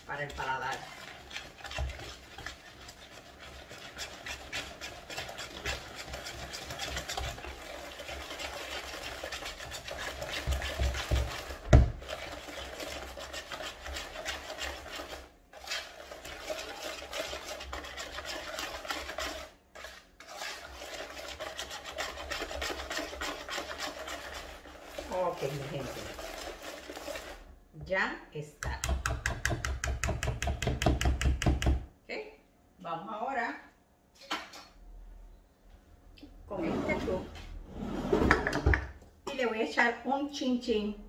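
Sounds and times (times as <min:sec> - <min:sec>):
almonds grinding rasping scrape: 0:00.0 - 0:27.5.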